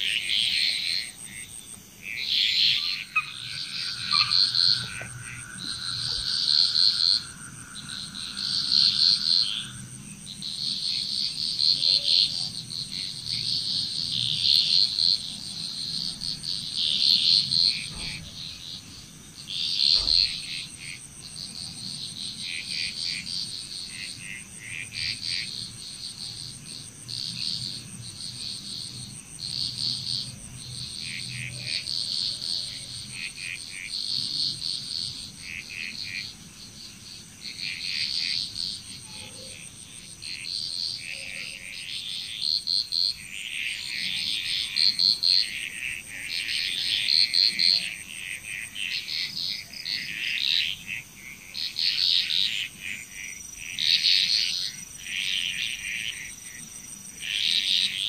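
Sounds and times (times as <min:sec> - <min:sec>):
high-pitched insect drone: 0:00.0 - 0:24.2
frogs calling: 0:00.0 - 0:58.0.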